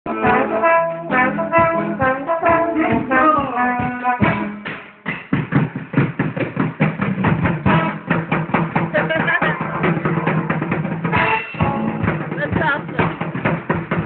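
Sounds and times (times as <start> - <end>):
brass instrument held notes: 0.1 - 4.9, 7.6 - 8.3, 11.0 - 12.5
drums quick beat: 0.1 - 14.0.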